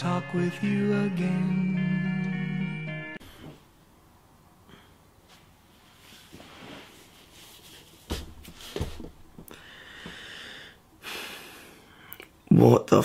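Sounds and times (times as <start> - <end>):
man rubbing his face: 5.3 - 9.0
soft thumps: 8.1 - 9.5
breathy exhale: 9.5 - 12.2.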